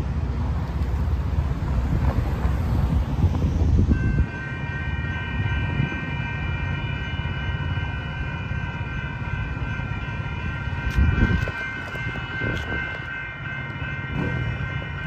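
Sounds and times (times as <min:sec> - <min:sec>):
crossing warning bells ringing: 0:00.0 - 0:15.0.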